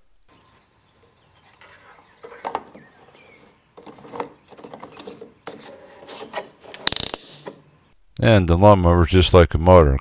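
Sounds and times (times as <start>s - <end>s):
plastic scraping on plastic: 1.4s - 7.6s.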